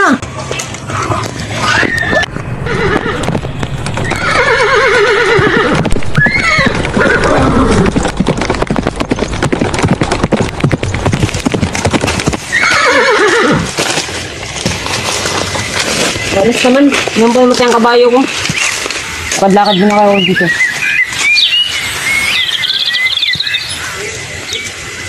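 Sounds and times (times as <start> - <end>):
hooves clip-clopping: 0.0 - 25.0
horse whinnying: 1.0 - 3.4, 4.0 - 8.0, 12.4 - 13.8.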